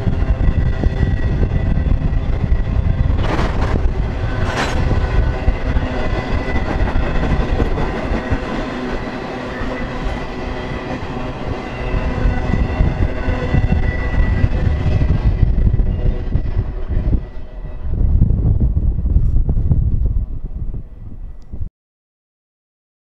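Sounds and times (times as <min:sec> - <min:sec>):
train wheels rumbling on rail: 0:00.0 - 0:21.6
high whine: 0:00.0 - 0:21.7.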